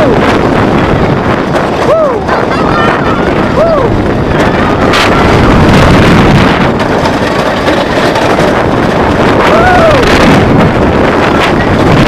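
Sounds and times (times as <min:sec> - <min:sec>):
roller coaster rumble and clatter: 0:00.0 - 0:12.0
wind buffeting microphone: 0:00.0 - 0:12.0
rider whooping: 0:01.8 - 0:05.7, 0:09.4 - 0:10.3.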